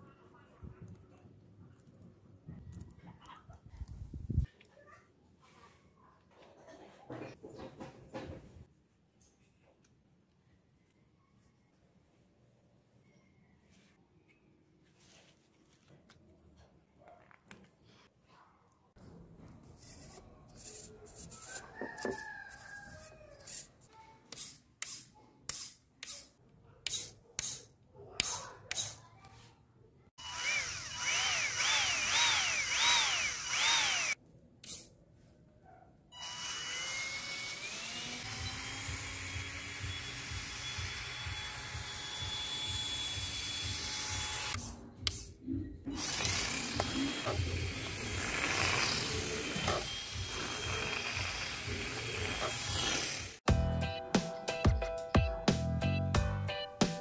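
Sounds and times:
small electric motor whining: 30.2s - 34.2s, 36.2s - 44.6s, 45.9s - 53.4s.

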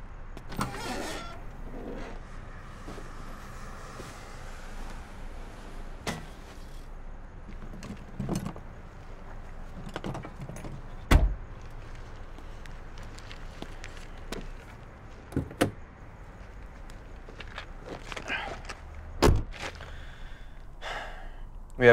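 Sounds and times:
low hum of car: 0.0s - 21.9s
car door shutting with thump: 19.2s - 19.5s.

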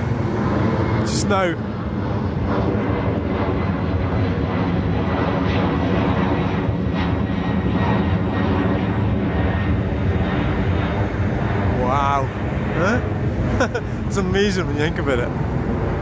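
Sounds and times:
airliner engines climbing overhead: 0.0s - 16.0s.

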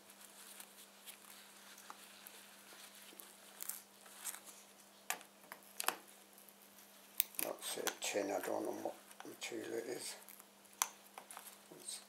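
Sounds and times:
soft rustles: 0.0s - 5.2s, 11.2s - 12.0s.

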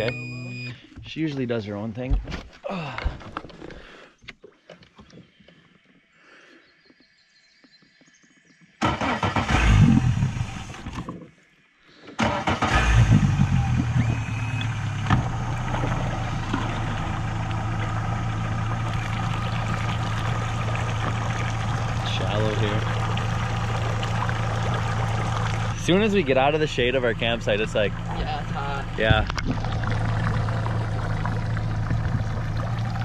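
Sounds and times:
outboard motor cranking and idling: 8.8s - 11.3s, 12.0s - 33.0s.

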